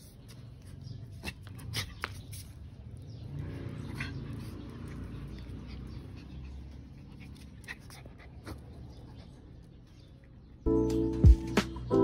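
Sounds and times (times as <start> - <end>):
dog panting: 3.5 - 9.8.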